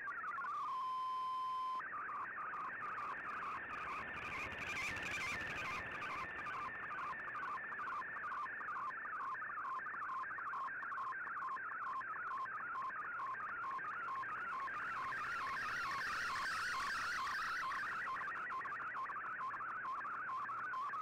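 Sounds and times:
warbling data tone: 0:13.4 - 0:18.4.

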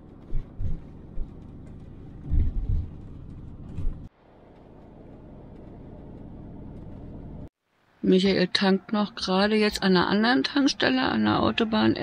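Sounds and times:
road and engine rumble: 0:00.0 - 0:07.6
heavy low thumps: 0:00.3 - 0:04.1.

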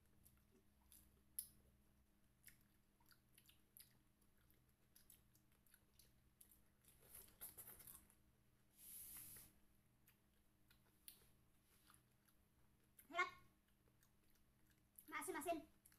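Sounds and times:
chewing juicy fruit: 0:00.0 - 0:08.2, 0:09.8 - 0:15.9
small wet clicks: 0:00.1 - 0:01.7.

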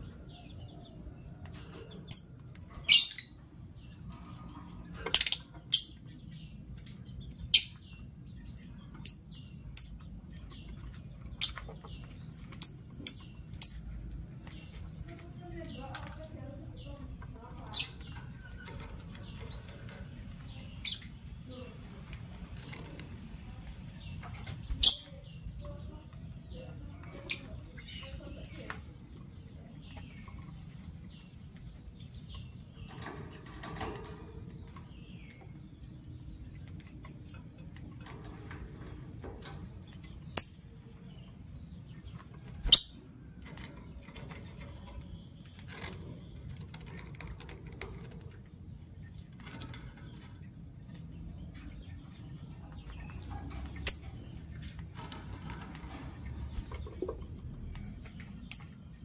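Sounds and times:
soft bird chattering: 0:01.6 - 0:06.5, 0:24.0 - 0:28.8, 0:40.0 - 0:41.4, 0:42.0 - 0:43.1, 0:52.8 - 0:54.5, 0:57.8 - 0:59.0.

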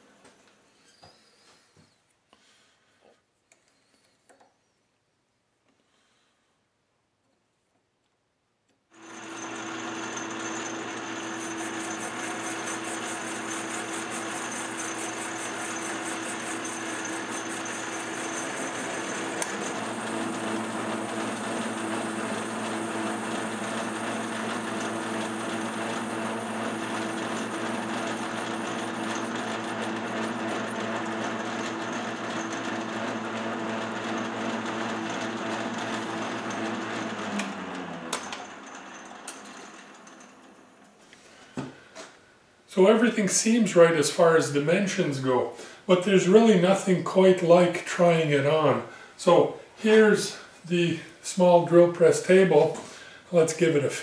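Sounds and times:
lathe tool cutting metal: 0:09.0 - 0:40.5
metal lathe whining: 0:09.0 - 0:40.8.

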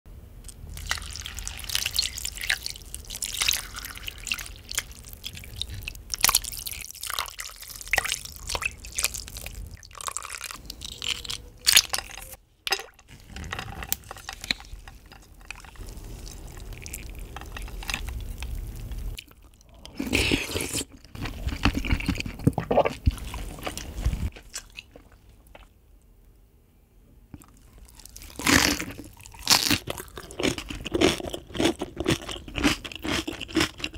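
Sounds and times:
crunchy chewing: 0:27.4 - 0:33.9.

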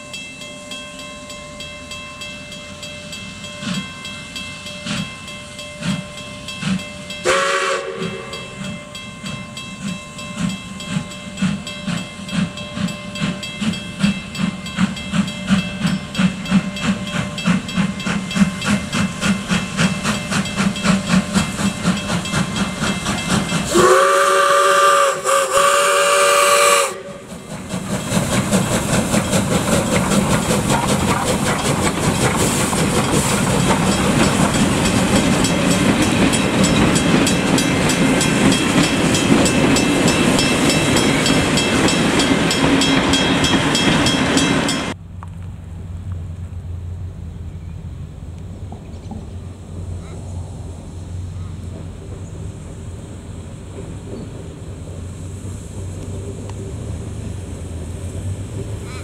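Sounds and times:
steam locomotive exhaust beats: 0:00.0 - 0:59.0
steam hissing: 0:03.2 - 0:45.0, 0:49.7 - 0:59.0
steam whistle blast: 0:07.2 - 0:08.4, 0:23.7 - 0:27.3.

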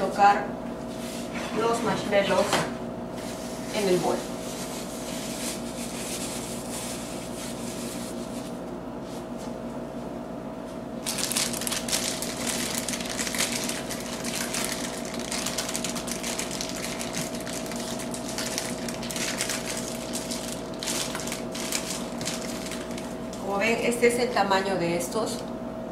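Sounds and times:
steady low hum: 0:00.0 - 0:25.9
plastic bag crinkling: 0:11.0 - 0:23.5.

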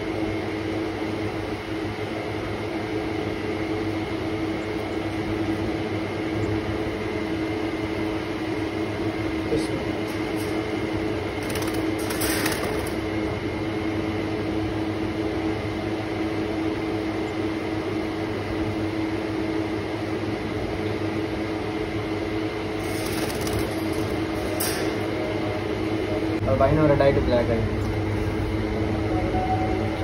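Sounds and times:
appliance motor humming: 0:09.8 - 0:13.5, 0:22.6 - 0:26.4.

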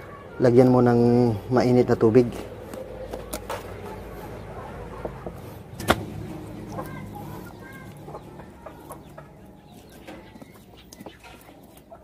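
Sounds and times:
chickens clucking: 0:00.0 - 0:12.0
feathers being plucked: 0:05.7 - 0:07.1.

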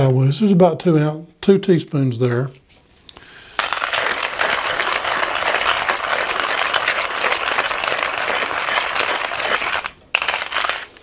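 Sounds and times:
coffee grinder crunching beans: 0:03.6 - 0:11.0.

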